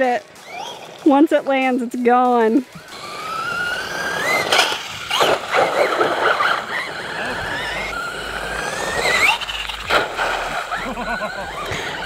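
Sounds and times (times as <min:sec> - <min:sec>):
electric motor whining: 0:00.0 - 0:01.8, 0:02.4 - 0:12.0
toy truck landing: 0:02.9 - 0:12.0.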